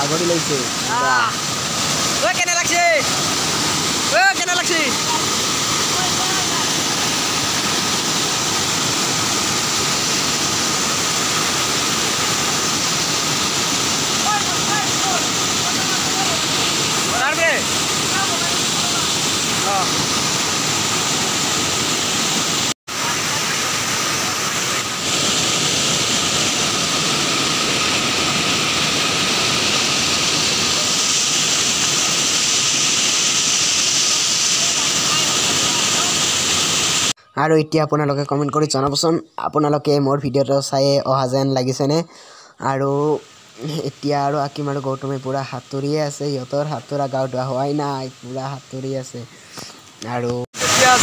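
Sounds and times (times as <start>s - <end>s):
waterfall rushing: 0.0s - 37.2s, 50.5s - 51.0s.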